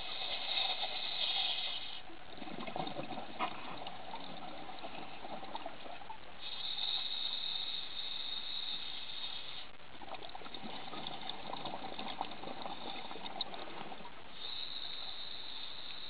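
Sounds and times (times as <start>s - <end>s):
regulator inhalation hiss: 0.0s - 2.1s, 6.4s - 9.8s, 14.3s - 16.0s
bubbling exhalation: 2.3s - 6.0s.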